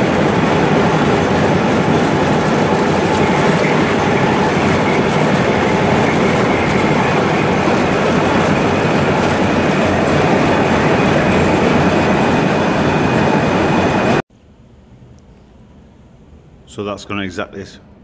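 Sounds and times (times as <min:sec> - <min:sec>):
coolant gushing: 0:00.0 - 0:14.2
lathe boring metal: 0:00.0 - 0:14.2.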